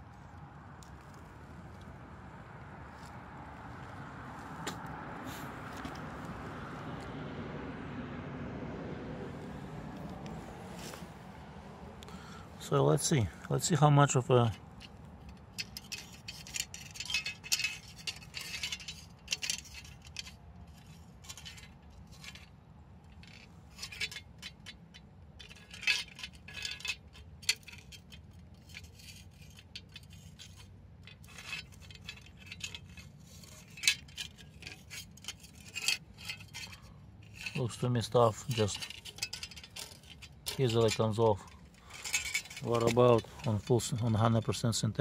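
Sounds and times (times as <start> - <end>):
metal tool scraping metal dish: 14.4 - 22.5, 25.4 - 44.6.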